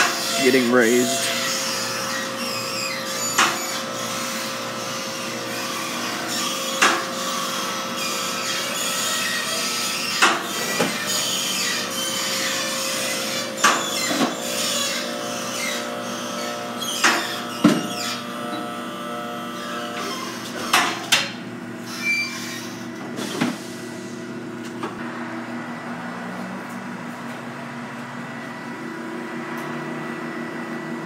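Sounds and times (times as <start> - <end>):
machine hum: 0.0 - 20.1.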